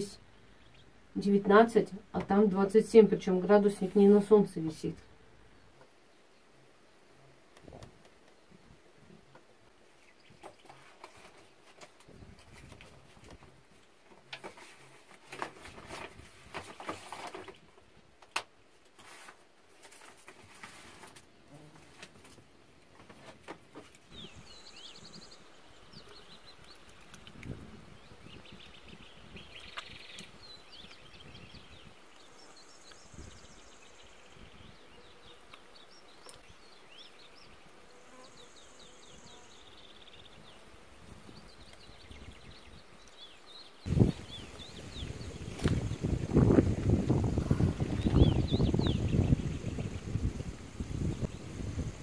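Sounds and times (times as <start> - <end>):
small birds chirping: 0.0 - 13.4, 23.8 - 52.0
dry buzzing bird trill: 28.2 - 42.7, 43.9 - 52.0.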